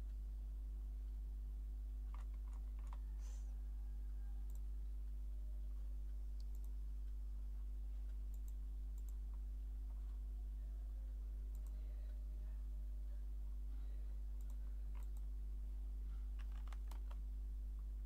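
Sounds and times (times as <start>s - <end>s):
low electrical hum: 0.0s - 18.0s
faint computer clicks: 2.1s - 3.0s, 4.4s - 4.7s, 6.4s - 7.2s, 8.0s - 10.2s, 11.5s - 12.2s, 14.4s - 15.3s, 16.4s - 17.2s.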